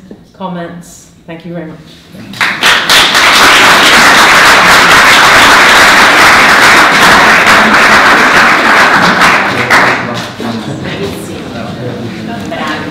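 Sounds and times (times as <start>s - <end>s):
audience applauding: 2.4s - 10.2s.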